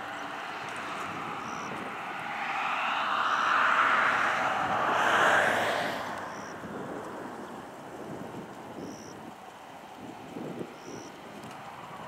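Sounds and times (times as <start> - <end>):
steady background rush: 0.0 - 7.9
vehicle tyre and road noise: 0.0 - 12.0.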